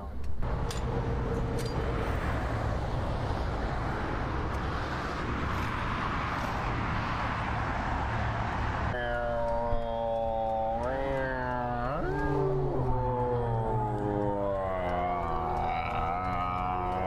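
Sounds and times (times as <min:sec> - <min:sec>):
highway traffic rushing: 0:00.0 - 0:17.0.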